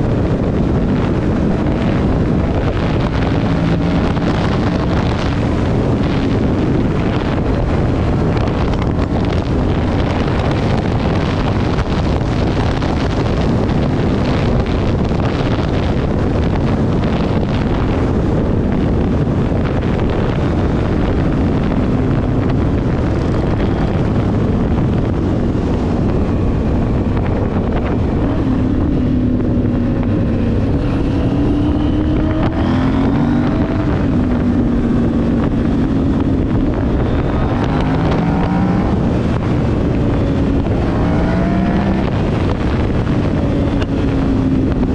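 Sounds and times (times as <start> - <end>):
motorcycle engines running: 0.0 - 44.9
wind noise on microphone: 0.0 - 44.9.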